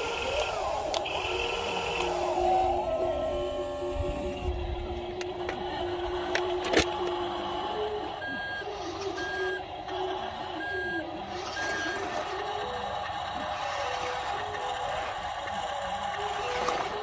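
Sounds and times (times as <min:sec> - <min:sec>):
wavering motor whine: 0:00.0 - 0:17.0
high reversing beeps: 0:08.2 - 0:09.6, 0:10.6 - 0:12.3.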